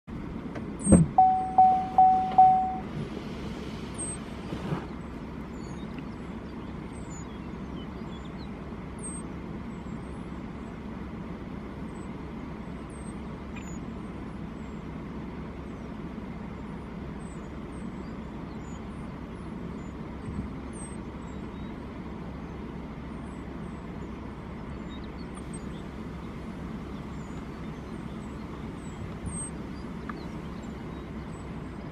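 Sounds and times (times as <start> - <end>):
low outdoor rumble: 0.1 - 31.9
faint high-pitched chirps: 1.2 - 2.9.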